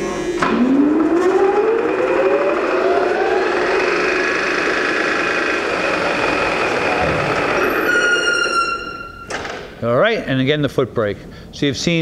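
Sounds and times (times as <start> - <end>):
lathe spindle whirr with gear whine: 0.0 - 9.2.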